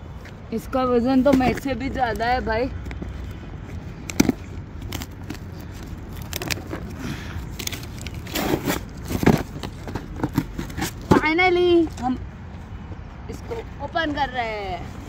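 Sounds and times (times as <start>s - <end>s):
hands tearing cardboard box: 4.0s - 11.2s.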